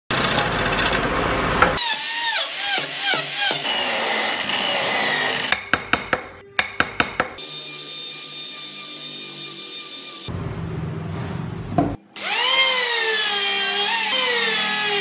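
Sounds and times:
bandsaw cutting wood: 0.1s - 5.6s, 7.2s - 10.3s, 12.2s - 15.0s.

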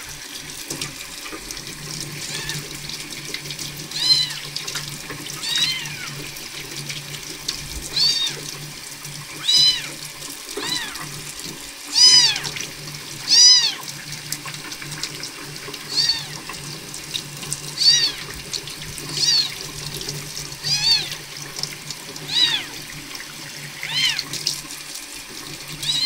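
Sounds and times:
tap water running into sink: 0.0s - 26.0s
kitten mewing: 4.0s - 4.4s, 5.4s - 6.2s, 7.9s - 8.4s, 9.4s - 10.0s, 10.6s - 11.2s, 11.9s - 12.6s, 13.3s - 13.8s, 15.9s - 16.4s, 17.8s - 18.3s, 19.2s - 19.6s, 20.6s - 21.2s, 22.3s - 22.8s, 23.8s - 24.3s.

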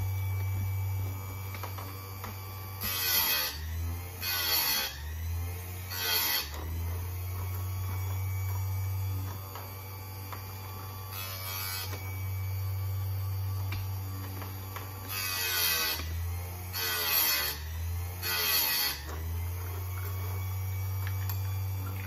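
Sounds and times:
sharpener motor humming: 0.0s - 22.0s.

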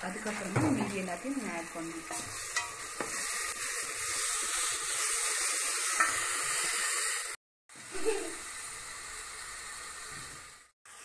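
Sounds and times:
paste sizzling in hot oil: 0.0s - 11.0s
steel spoon stirring: 2.0s - 4.2s.

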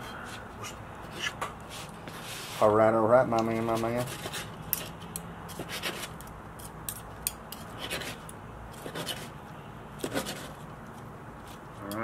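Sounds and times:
knife scraping plate: 3.6s - 6.8s, 7.5s - 9.4s.

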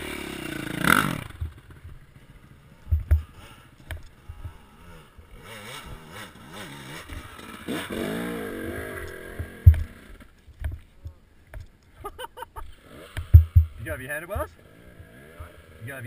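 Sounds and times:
dirt bike engine revving: 0.0s - 10.3s, 12.7s - 16.0s
low thumps: 1.2s - 2.1s, 2.8s - 4.6s, 9.3s - 11.7s, 13.2s - 14.6s.

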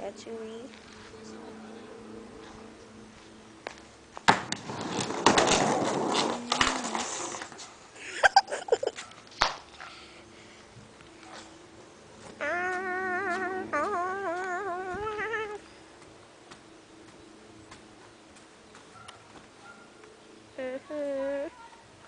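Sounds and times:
skateboard wheels rolling on concrete: 2.4s - 10.0s
skateboard clattering: 4.2s - 7.8s.

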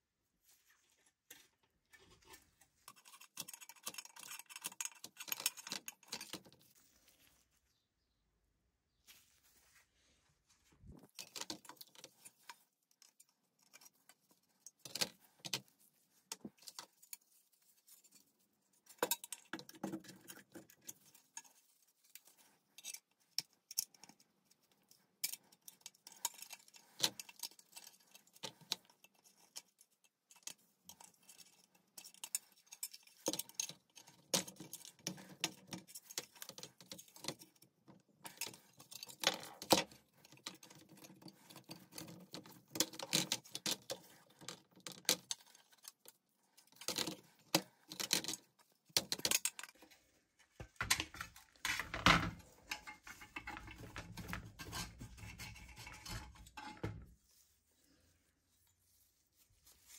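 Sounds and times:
small metal parts clicking and clinking: 2.9s - 6.6s, 18.9s - 49.9s.

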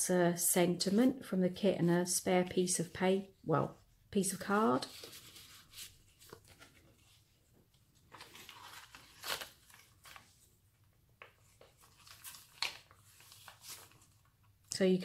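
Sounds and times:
paper and card rustling: 4.3s - 14.6s.

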